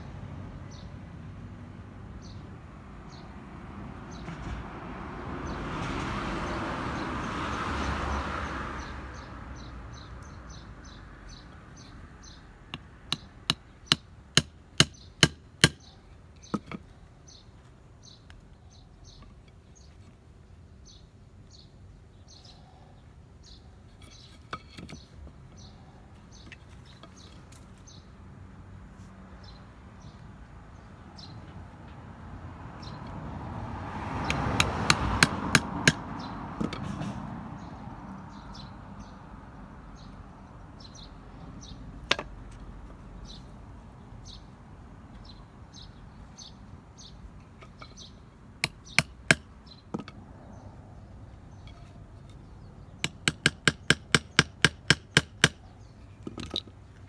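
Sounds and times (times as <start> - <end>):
hatchet chopping wood: 12.7 - 15.9, 34.2 - 37.0, 48.6 - 50.2, 53.0 - 55.7.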